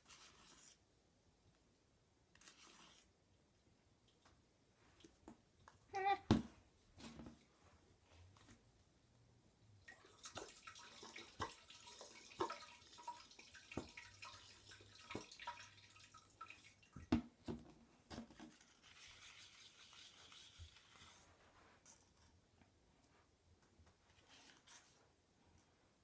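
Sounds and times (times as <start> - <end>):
wet liquid sounds: 9.8 - 17.0.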